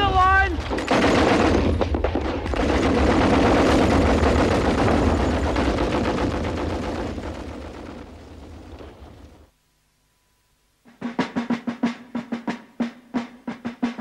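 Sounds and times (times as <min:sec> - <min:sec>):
rapid machine-gun fire: 0:00.0 - 0:09.5.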